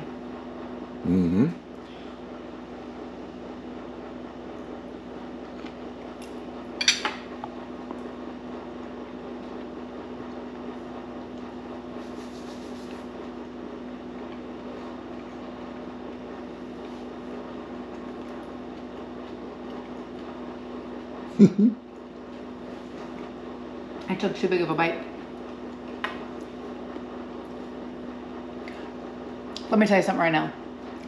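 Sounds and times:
low room tone hum: 0.0s - 31.0s
person humming while chewing: 1.0s - 1.9s, 21.3s - 22.0s
cutlery clinking against plate: 6.8s - 7.2s.

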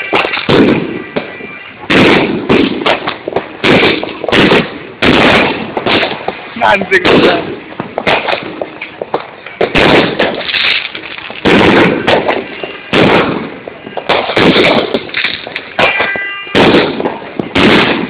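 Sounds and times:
fireworks bangs: 0.0s - 18.0s
fireworks crackling: 0.0s - 18.0s.

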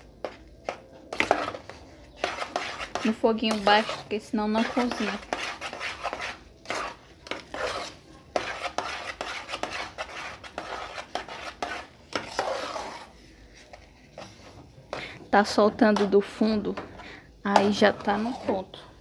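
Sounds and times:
spoon stirring in metal pot: 0.0s - 19.0s
spoon scraping and clinking on pot: 1.2s - 13.1s, 17.5s - 18.8s.

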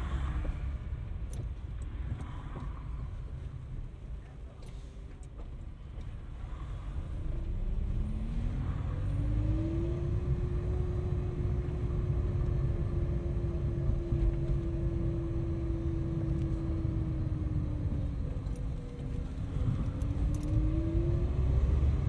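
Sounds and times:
car whine: 0.0s - 22.0s
road and engine rumble: 0.0s - 22.0s.

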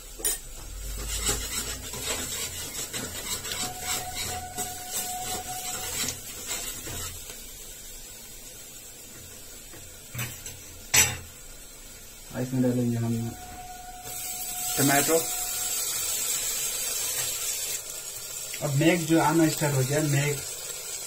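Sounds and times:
ladle scraping metal pot: 0.8s - 7.2s, 13.3s - 16.3s.

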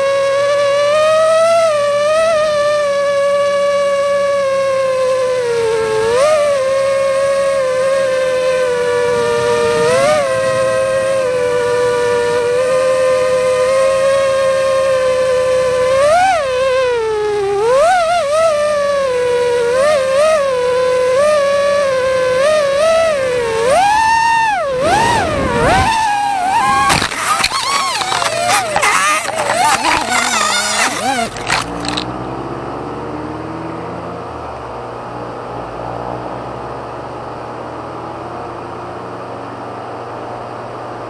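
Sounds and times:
drone motors whining: 0.0s - 32.3s.

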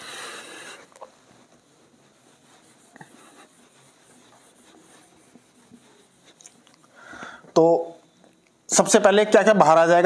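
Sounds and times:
eraser rubbing whiteboard: 0.0s - 6.9s.

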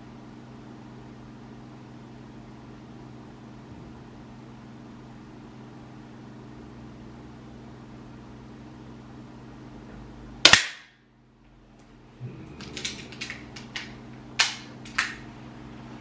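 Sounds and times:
air pistol shot: 10.4s - 11.0s
pistol mechanical clicks and rattles: 12.6s - 15.2s.

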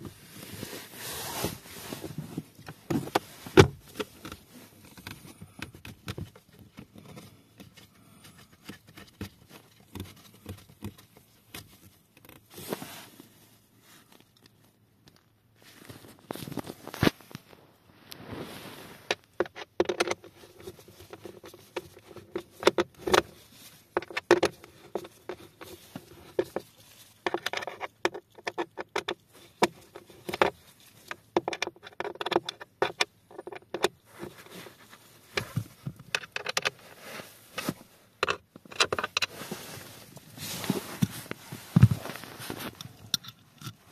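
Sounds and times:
plastic and metal clicks and rattles: 19.1s - 23.3s, 23.9s - 34.0s, 35.4s - 36.8s, 38.2s - 39.3s.

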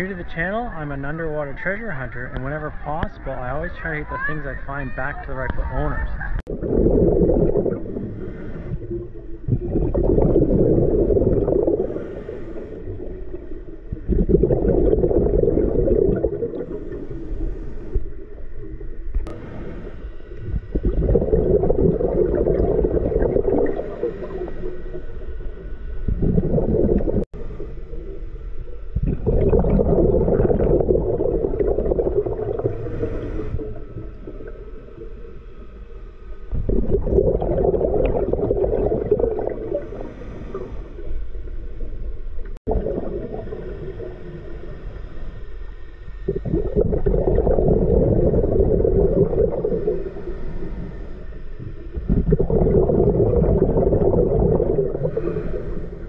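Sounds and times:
exhaled bubbles rushing: 6.4s - 19.7s, 20.4s - 35.4s, 36.5s - 44.7s, 46.3s - 50.8s, 51.6s - 56.0s
scuba regulator breathing: 6.8s - 9.5s, 10.7s - 13.7s, 14.8s - 18.4s, 37.5s - 41.9s, 49.3s - 56.0s.

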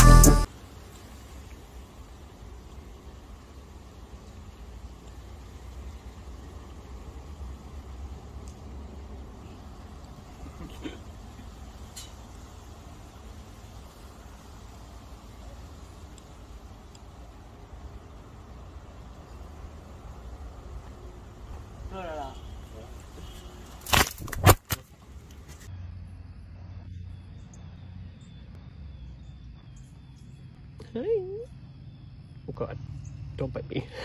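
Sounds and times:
background hiss: 0.0s - 23.9s
low steady rumble: 25.0s - 34.0s
faint high chirping: 25.7s - 33.7s.

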